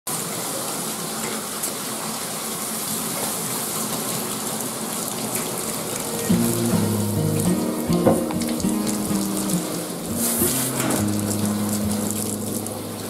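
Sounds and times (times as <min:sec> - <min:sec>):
water splashing into metal tub: 0:05.5 - 0:13.0
shower sprayer spraying water: 0:06.1 - 0:13.0.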